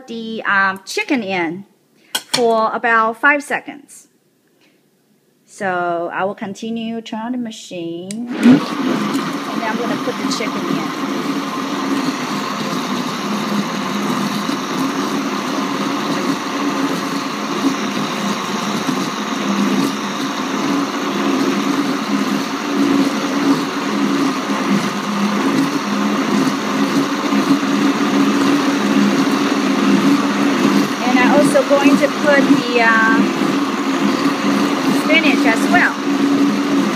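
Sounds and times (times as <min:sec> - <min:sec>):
blender motor running: 0:08.3 - 0:36.9.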